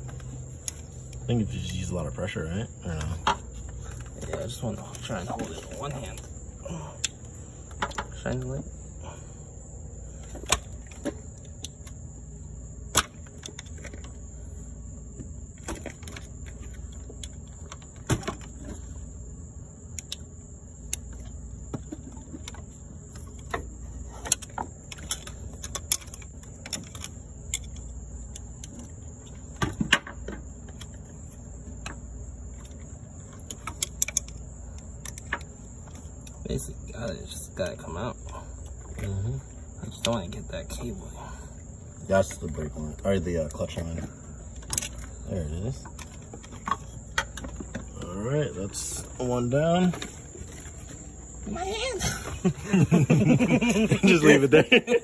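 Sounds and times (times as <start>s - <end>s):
faint high whine: 0.0s - 55.0s
steady low hum: 0.0s - 55.0s.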